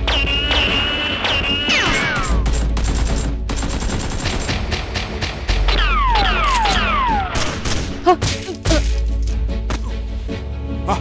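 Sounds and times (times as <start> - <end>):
rapid gunfire sound effects: 0.1 - 7.9.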